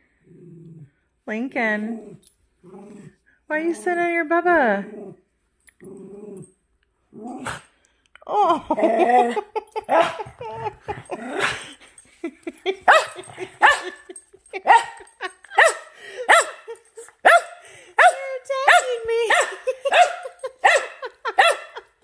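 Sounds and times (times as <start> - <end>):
small dogs barking and yipping: 12.6 - 22.0.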